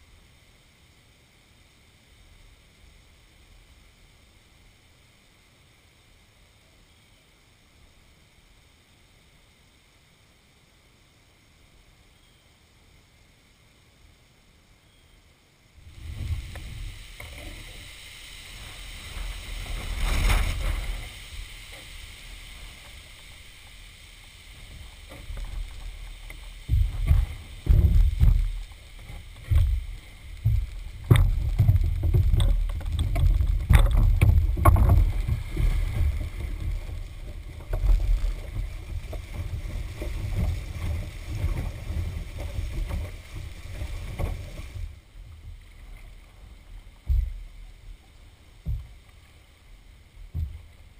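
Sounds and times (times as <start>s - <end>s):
wind buffeting microphone: 15.8s - 21.8s, 24.5s - 45.5s
water sloshing around hull: 15.9s - 50.9s
sharp knocks on canoe: 26.7s - 28.6s, 30.4s - 35.6s, 50.3s - 50.7s.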